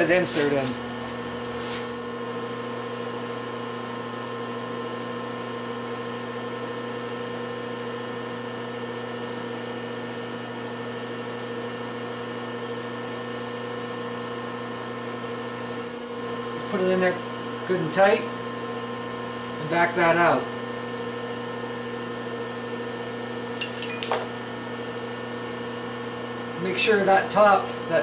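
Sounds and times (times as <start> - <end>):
steady machine hum: 0.0 - 5.4.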